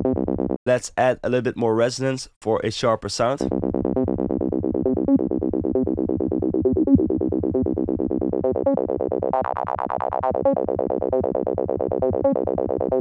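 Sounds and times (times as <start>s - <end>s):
synth acid bassline: 3.5s - 13.0s.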